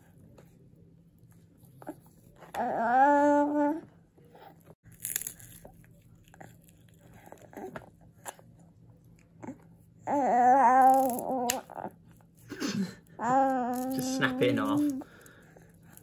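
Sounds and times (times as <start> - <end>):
baby vocalizing: 1.8 - 3.9, 13.2 - 15.0
baby crunching food: 4.4 - 12.2, 13.2 - 16.0.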